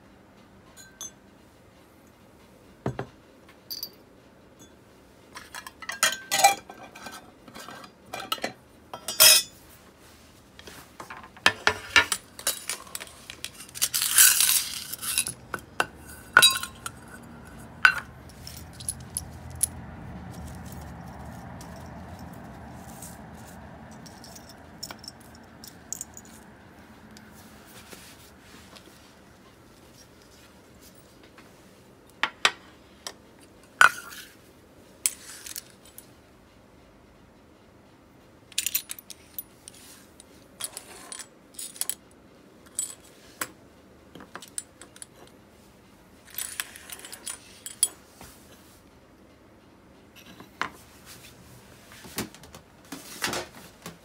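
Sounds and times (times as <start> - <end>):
faint steady hum: 0.0 - 54.0
small metal parts clinking: 11.6 - 26.5, 38.5 - 39.8, 40.6 - 42.0, 46.2 - 48.0
scraping rustle: 16.1 - 26.4.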